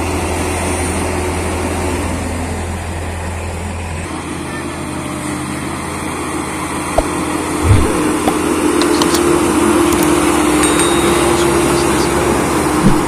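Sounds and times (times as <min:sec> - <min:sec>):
road roller diesel engine: 0:00.0 - 0:13.0
low thump: 0:07.0 - 0:08.4.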